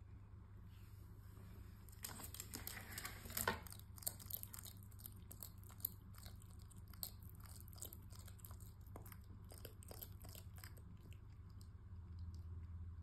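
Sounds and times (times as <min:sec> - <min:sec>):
lizard chewing crunches: 0:01.8 - 0:12.4.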